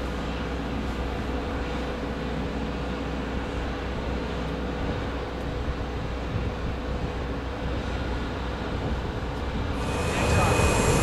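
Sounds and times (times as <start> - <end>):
mechanical drone: 9.6 - 11.0.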